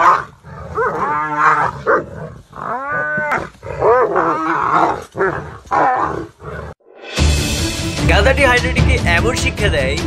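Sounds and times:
animal crying out in pain: 0.0 - 6.4.

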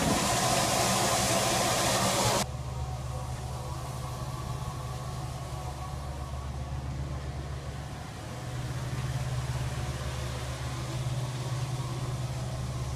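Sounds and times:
suction blower droning: 0.0 - 2.4
rushing air: 0.0 - 2.5.

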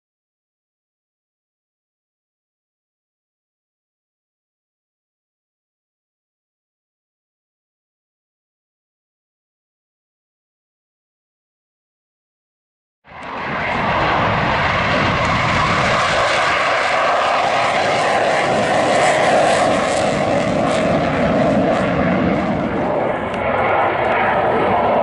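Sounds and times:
jet engine flying past overhead: 13.1 - 25.0.

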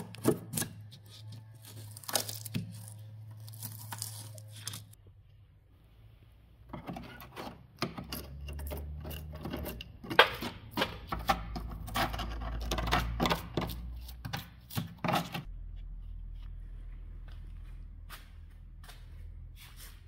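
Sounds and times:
screwdriver scraping rusted metal: 6.7 - 15.5
low steady hum: 15.4 - 20.0.

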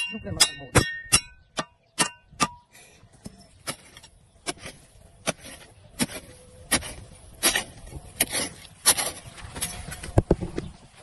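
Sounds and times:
hoe chopping into dry soil: 3.6 - 10.0.

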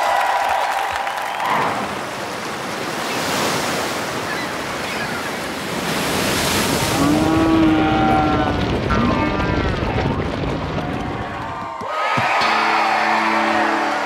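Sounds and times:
ocean wave breaking: 0.9 - 10.4.

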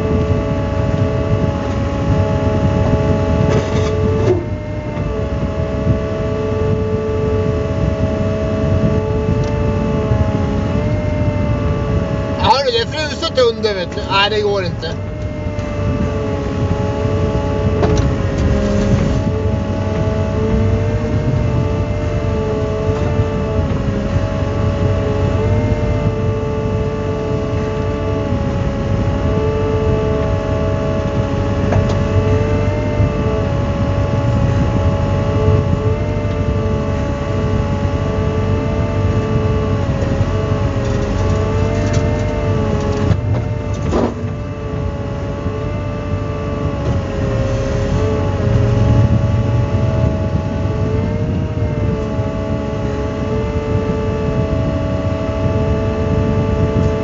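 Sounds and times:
hydraulic whine: 0.0 - 28.3.

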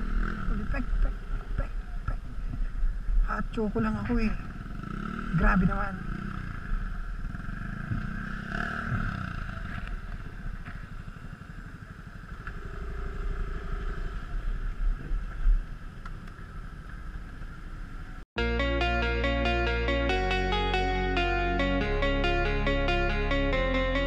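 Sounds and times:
motorcycle engine idling: 4.0 - 18.2
music: 18.4 - 24.0.

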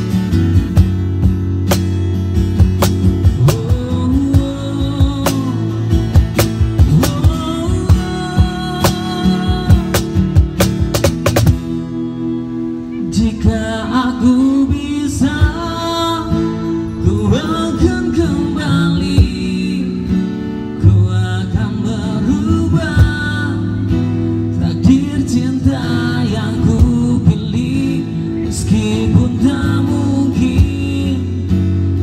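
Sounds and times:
strummed acoustic guitar: 0.0 - 32.0
person singing into a microphone: 3.3 - 5.9, 6.6 - 10.2, 13.0 - 20.2, 20.8 - 31.7.

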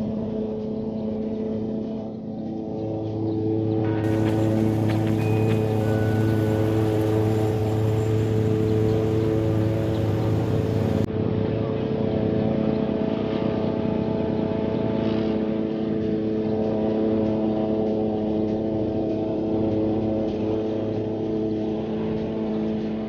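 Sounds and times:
lawn mower engine running: 4.0 - 11.1.

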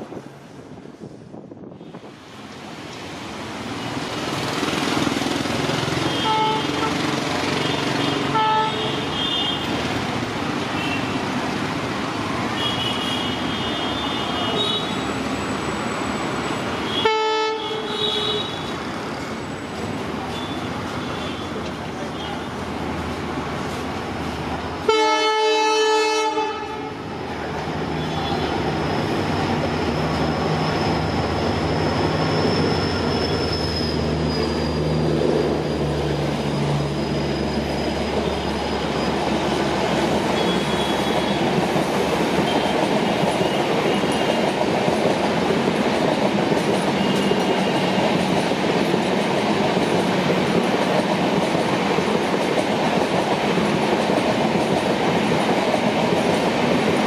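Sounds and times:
diesel locomotive engine drone: 0.0 - 57.0
train coaches rumbling and clacking: 0.0 - 57.0
locomotive horn blast: 6.0 - 9.6, 16.9 - 18.7, 24.8 - 27.0.

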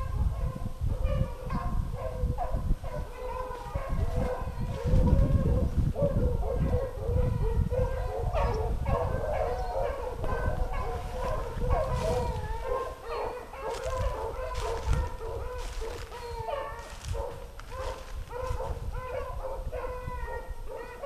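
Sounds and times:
dogs baying and howling: 0.0 - 21.0
dry leaves crunching underfoot: 10.9 - 18.8.

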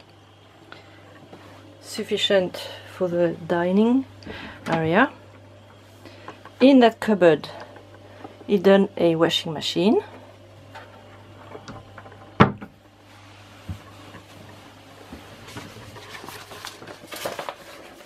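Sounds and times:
low steady hum: 0.0 - 18.0
wooden cupboard door shutting: 12.4 - 12.7
rustling: 13.1 - 18.0.

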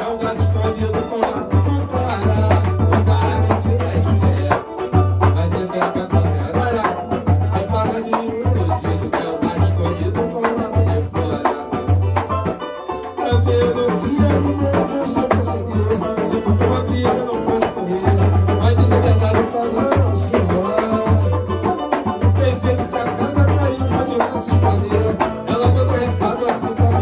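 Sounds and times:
hand drum beat: 0.0 - 27.0
samba group playing: 0.0 - 27.0.

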